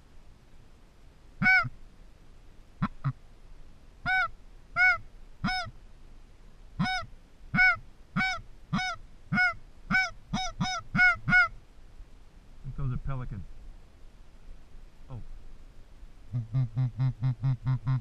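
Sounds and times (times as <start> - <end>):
goose-like honks: 1.4 - 1.7, 4.1 - 5.7, 6.8 - 11.5.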